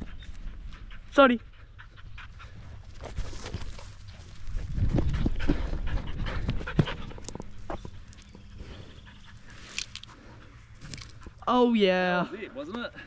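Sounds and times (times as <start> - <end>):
dog panting: 0.0 - 3.2, 4.9 - 11.5.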